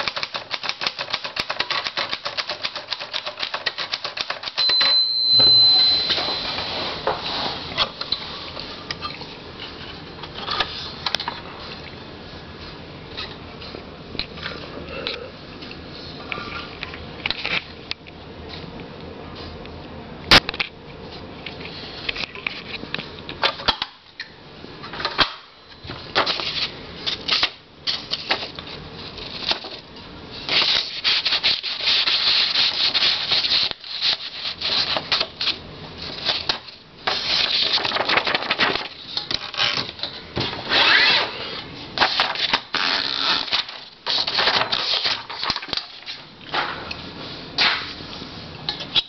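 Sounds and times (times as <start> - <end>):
typewriter keys clacking: 0.0 - 4.9.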